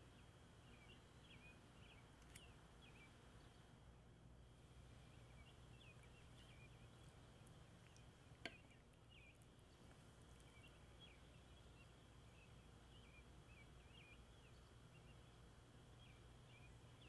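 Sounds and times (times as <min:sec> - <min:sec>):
faint birds chirping: 0:00.0 - 0:17.0
low steady hum: 0:00.0 - 0:17.0.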